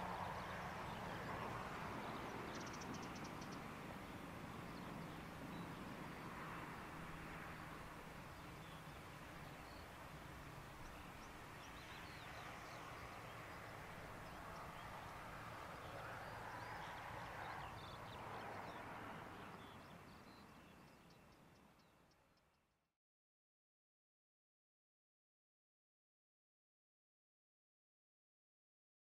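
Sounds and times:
distant jet engines taxiing: 0.0s - 21.8s
birds chirping: 0.1s - 22.2s.

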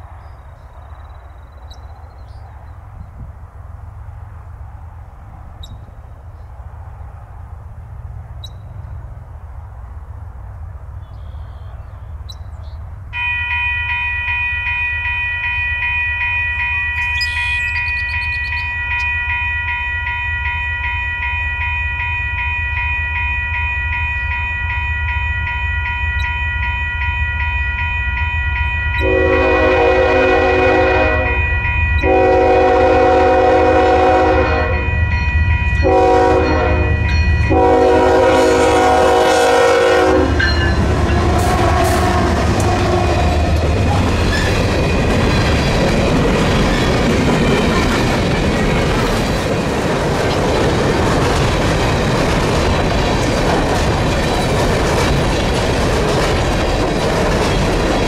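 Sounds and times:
crossing bell ringing: 13.1s - 49.6s
train air horn: 29.0s - 34.9s, 35.8s - 44.0s
diesel locomotive rumble: 29.0s - 58.0s.

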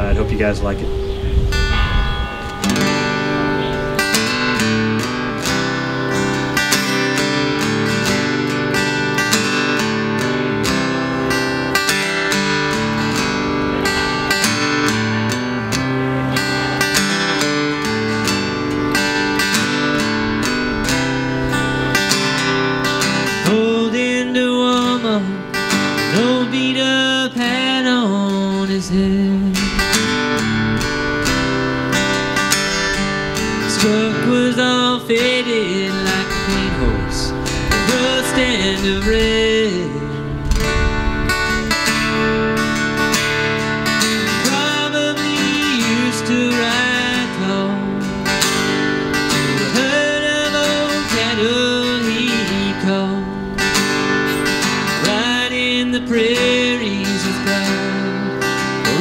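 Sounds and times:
acoustic guitar strumming: 0.0s - 59.0s
man singing: 23.1s - 30.2s, 33.5s - 40.4s, 44.2s - 48.6s, 49.2s - 53.8s, 54.6s - 59.0s.

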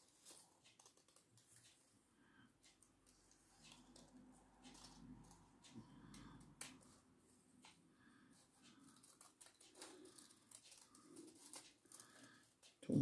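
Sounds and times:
scissors snipping paper: 0.0s - 1.7s, 8.6s - 12.8s
paper rustling: 8.7s - 12.4s.

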